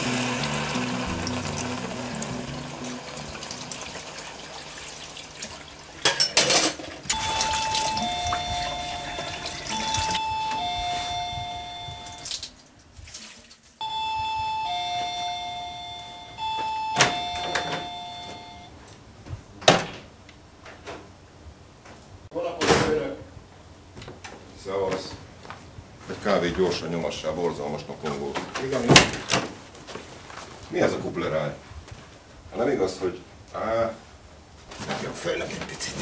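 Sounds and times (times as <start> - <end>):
tap water running into sink: 0.0 - 10.2
electronic doorbell chiming: 7.1 - 12.3, 13.8 - 18.8.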